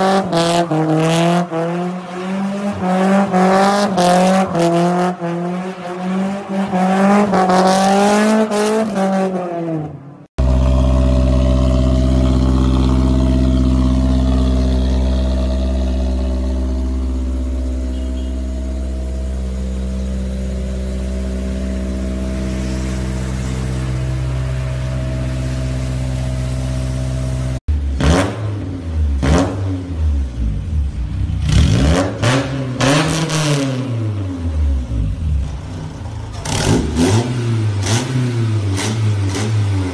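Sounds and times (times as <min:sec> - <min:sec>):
car engine revving: 0:00.0 - 0:39.9.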